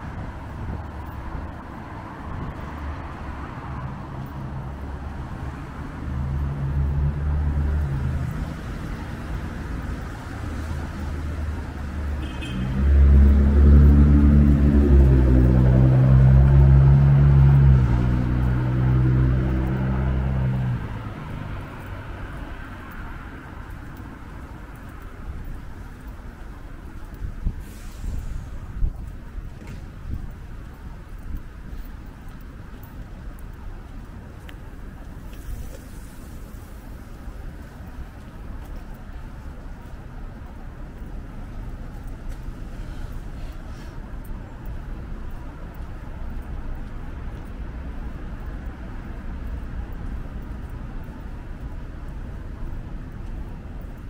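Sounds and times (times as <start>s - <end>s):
large vehicle engine droning: 0.0s - 24.6s
cars passing on wet road: 0.0s - 54.0s.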